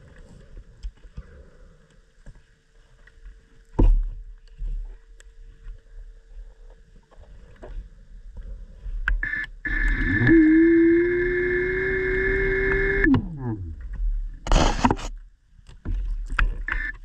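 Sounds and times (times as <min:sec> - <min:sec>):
faint steady hum: 0:00.0 - 0:17.0
low underwater rumble: 0:12.1 - 0:16.7
underwater gear clicks and knocks: 0:13.1 - 0:16.7.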